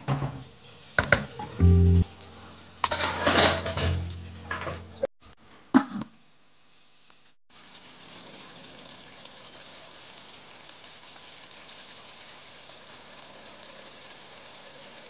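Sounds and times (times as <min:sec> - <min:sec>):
sauce simmering crackling hiss: 0:06.7 - 0:15.0.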